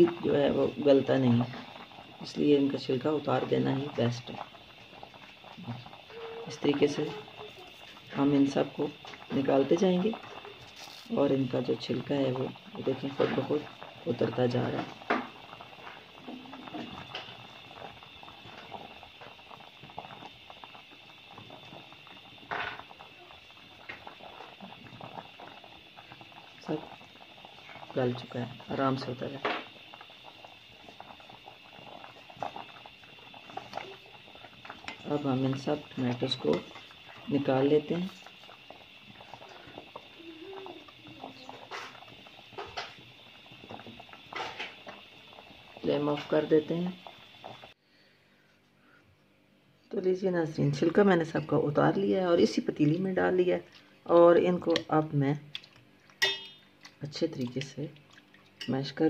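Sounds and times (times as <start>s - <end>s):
water boiling and bubbling: 0.0s - 49.0s, 49.9s - 59.0s.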